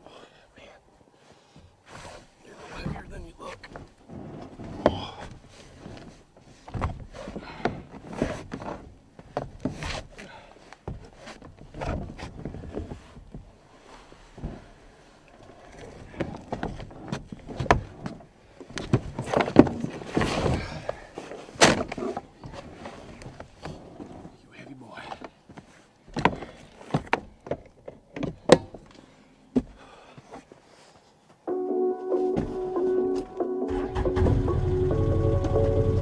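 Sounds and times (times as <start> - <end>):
knocks and scrapes on truck bed: 1.6 - 14.8, 15.8 - 24.4, 25.2 - 28.9.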